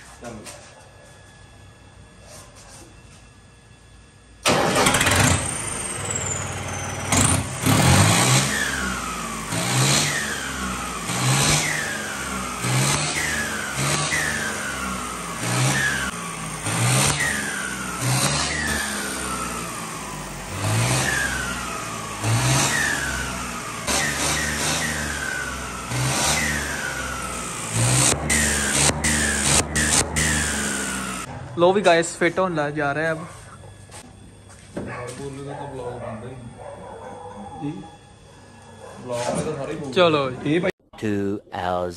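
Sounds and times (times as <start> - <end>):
tractor diesel engine revving: 4.4 - 31.3.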